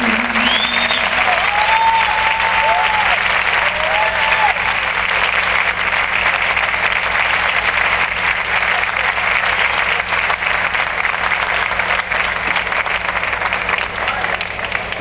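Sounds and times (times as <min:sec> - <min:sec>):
low hum: 0:00.0 - 0:04.9
audience applauding: 0:00.0 - 0:15.0.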